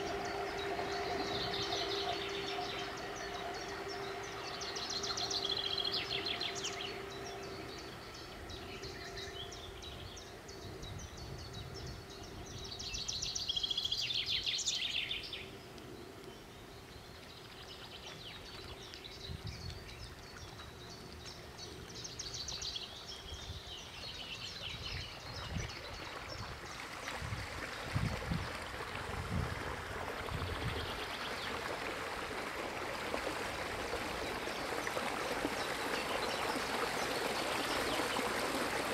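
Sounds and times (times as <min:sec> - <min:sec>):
songbirds singing: 0:00.0 - 0:32.3, 0:33.2 - 0:38.9
electric motorboat approaching: 0:00.0 - 0:38.9
rushing splashing water: 0:25.0 - 0:38.9
wind gusts buffeting: 0:27.2 - 0:31.0.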